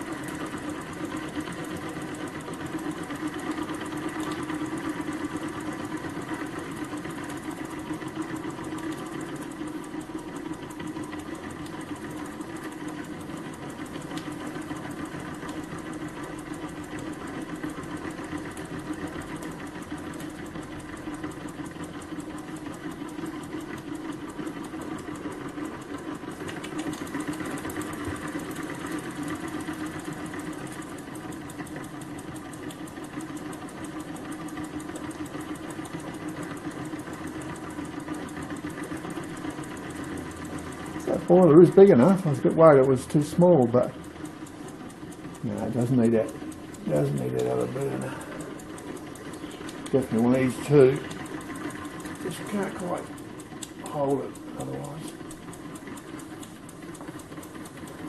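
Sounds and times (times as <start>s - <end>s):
steam engine running: 0.0s - 58.0s.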